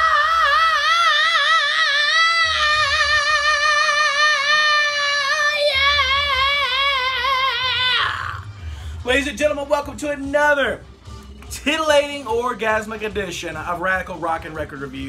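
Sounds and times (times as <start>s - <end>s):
man singing falsetto wail: 0.0s - 8.5s.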